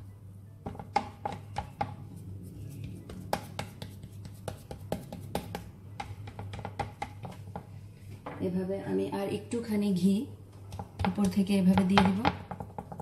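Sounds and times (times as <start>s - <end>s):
spatula tapping and scraping tray: 0.6s - 7.8s, 10.6s - 13.0s.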